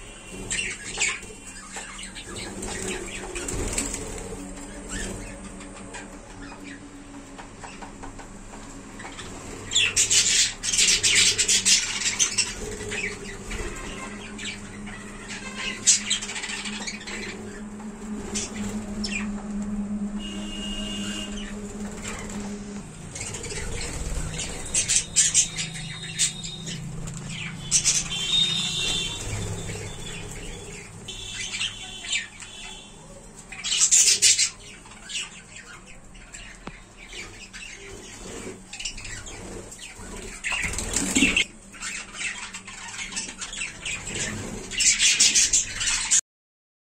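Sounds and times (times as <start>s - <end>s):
low steady hum: 0.0s - 33.6s
budgerigars chattering: 0.3s - 6.8s, 9.0s - 17.6s, 23.1s - 32.9s, 33.5s - 46.2s
loud sharp squawks: 20.2s - 46.2s.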